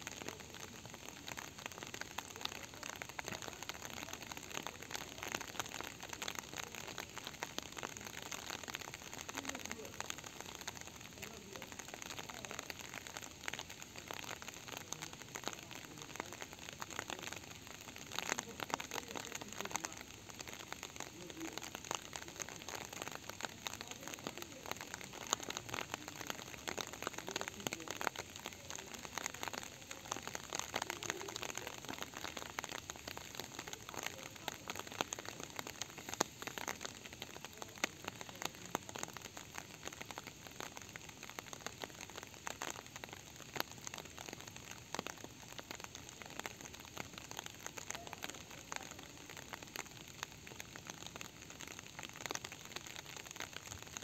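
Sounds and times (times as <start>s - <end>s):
raindrops ticking: 0.0s - 54.0s
steady rain falling: 0.0s - 54.0s.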